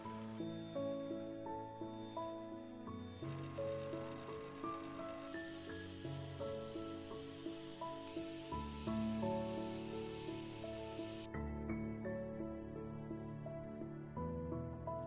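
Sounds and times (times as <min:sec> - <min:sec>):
background music: 0:00.0 - 0:15.0
angle grinder grinding steel: 0:03.1 - 0:11.3.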